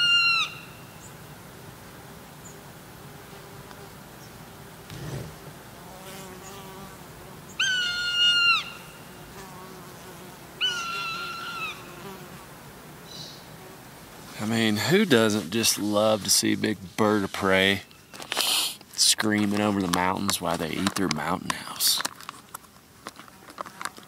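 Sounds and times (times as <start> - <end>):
bird of prey screaming: 0.0 - 0.8, 7.6 - 9.0, 10.6 - 11.9
flies buzzing: 1.6 - 16.1.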